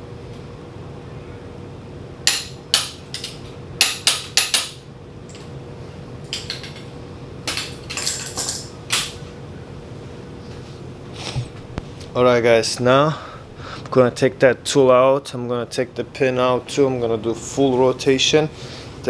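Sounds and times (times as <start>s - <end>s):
tools rattling and scraping: 7.5s - 9.2s.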